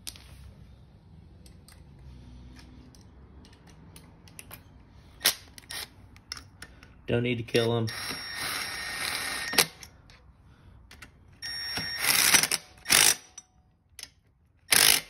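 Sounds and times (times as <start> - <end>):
cordless power driver spinning: 7.9 - 9.8.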